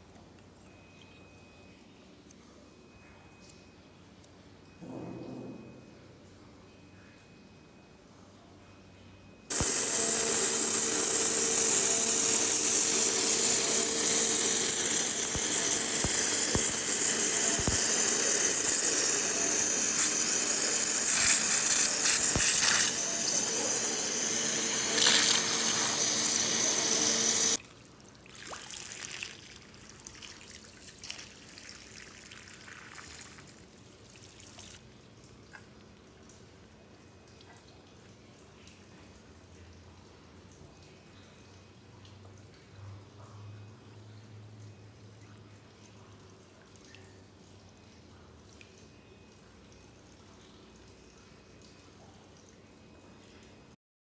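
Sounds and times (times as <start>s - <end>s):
waterjet cutter hissing: 9.5s - 27.6s.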